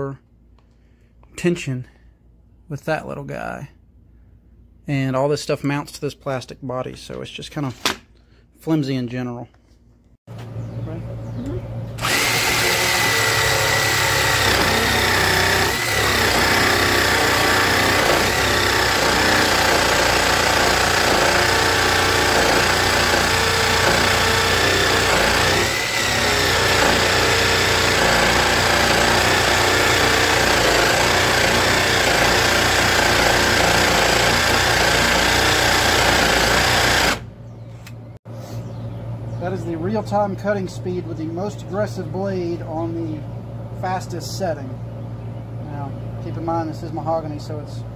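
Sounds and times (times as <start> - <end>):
jigsaw sawing through wood: 12.0 - 37.3.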